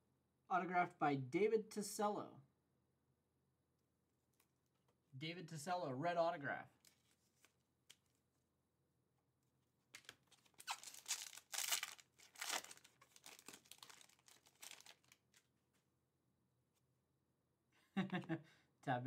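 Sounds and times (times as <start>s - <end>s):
foil wrapper tearing and crinkling: 10.0s - 15.4s.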